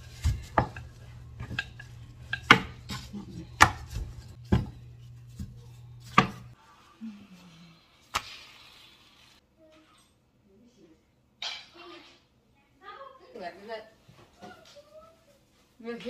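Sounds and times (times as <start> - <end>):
steady low hum: 0.0 - 7.8.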